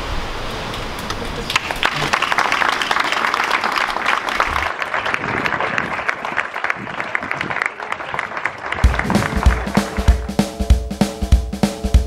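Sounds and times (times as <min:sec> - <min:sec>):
audience applauding: 0:01.1 - 0:10.4
music with drum-kit beat: 0:08.8 - 0:12.0.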